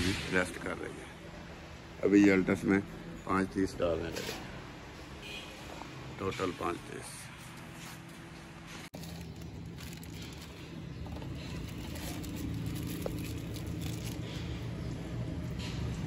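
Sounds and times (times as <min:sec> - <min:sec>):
plastic wrapping crinkling: 0:08.9 - 0:14.4.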